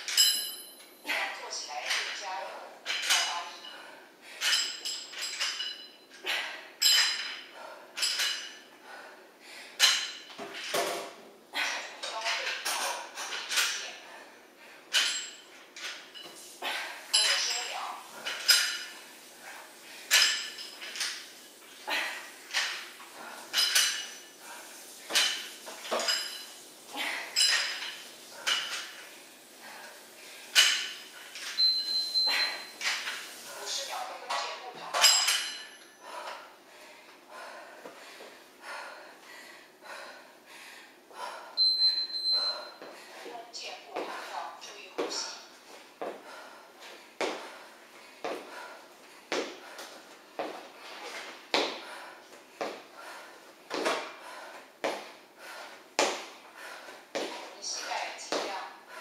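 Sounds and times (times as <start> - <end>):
metal dumbbells clinking: 0.0 - 8.7, 9.8 - 14.0, 14.9 - 19.0, 20.1 - 36.5.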